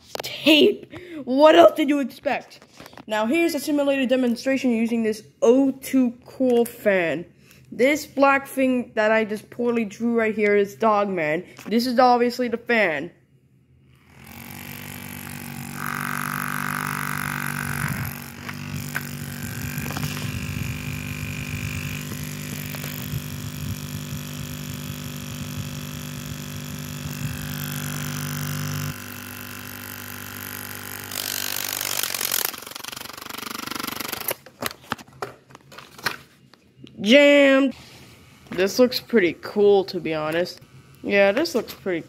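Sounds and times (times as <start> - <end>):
handheld fan motor humming: 13.9 - 34.4.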